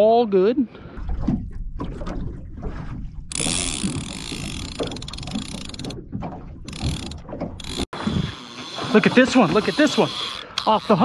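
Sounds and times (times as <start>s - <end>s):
fishing reel clicker buzzing: 3.3s - 5.9s, 6.7s - 11.0s.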